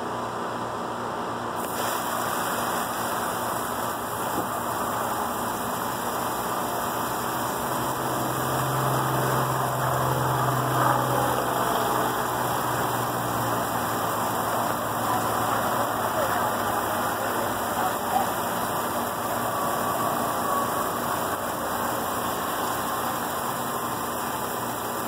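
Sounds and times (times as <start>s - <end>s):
hose spraying water on leaves: 1.6s - 25.0s.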